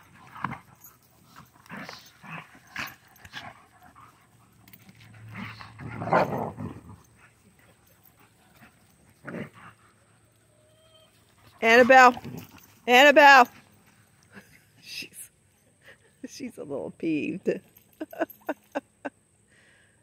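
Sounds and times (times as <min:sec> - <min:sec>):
dogs growling: 0:00.0 - 0:10.2.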